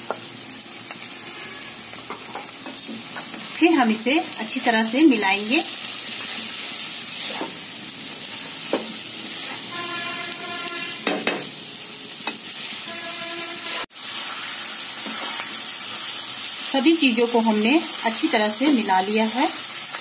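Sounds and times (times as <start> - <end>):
food sizzling in a frying pan: 0.0 - 20.0
wooden spatula scraping: 7.2 - 7.6, 9.3 - 10.8.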